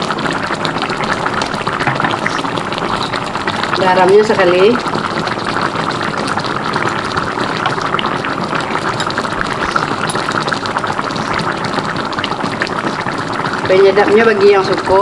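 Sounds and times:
pot bubbling at a boil: 0:00.0 - 0:15.0.

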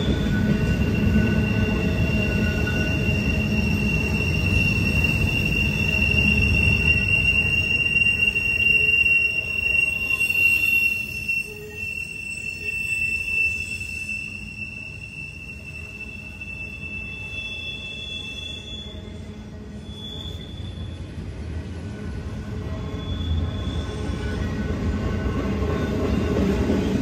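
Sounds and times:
train rumbling past: 0:00.0 - 0:27.0
train wheels squealing: 0:00.0 - 0:27.0.

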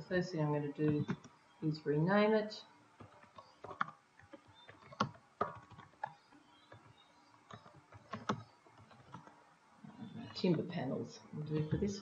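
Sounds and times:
computer keyboard key taps: 0:04.6 - 0:06.9, 0:07.5 - 0:09.3.

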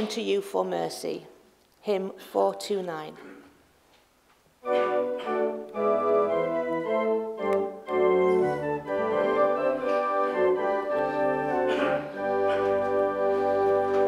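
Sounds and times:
church organ playing hymn: 0:04.6 - 0:14.0.

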